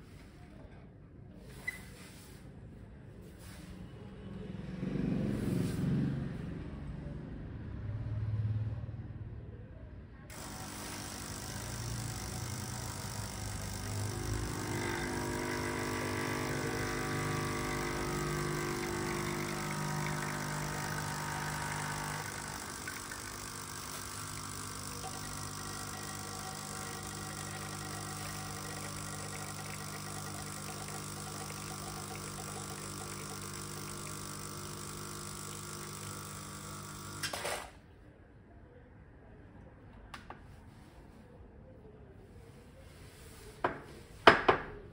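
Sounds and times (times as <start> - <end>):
espresso pump buzzing: 10.3 - 37.7.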